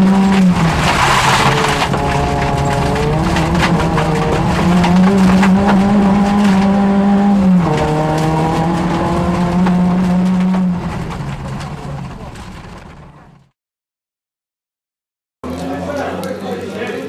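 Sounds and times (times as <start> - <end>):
car engine at high revs: 0.0 - 13.4
gravel striking car underside: 0.0 - 13.5.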